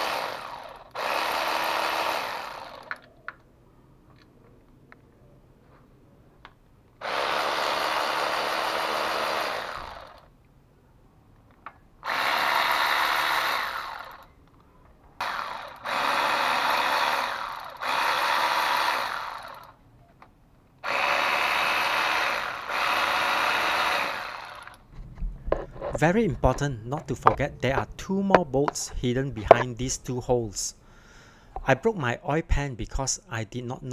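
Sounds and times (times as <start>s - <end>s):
electric ratchet whirring: 0.0s - 3.1s, 7.0s - 10.3s, 12.0s - 14.4s, 15.2s - 19.8s, 20.8s - 24.9s.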